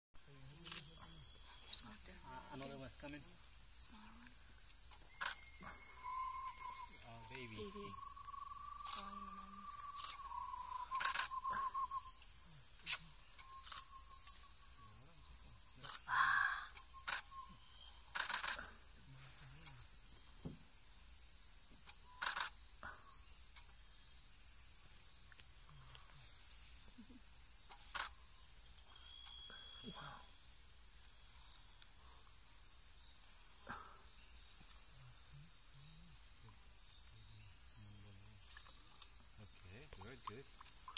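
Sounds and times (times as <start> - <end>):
insects buzzing: 0.2 - 40.9
wavering animal call: 5.2 - 12.3, 16.0 - 17.6
sharp clicks: 10.9 - 11.3.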